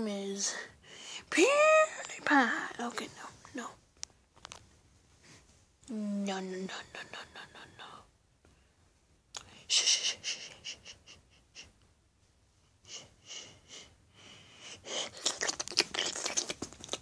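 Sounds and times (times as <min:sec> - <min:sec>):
rustling and handling noise: 0:01.6 - 0:06.0, 0:15.4 - 0:17.0.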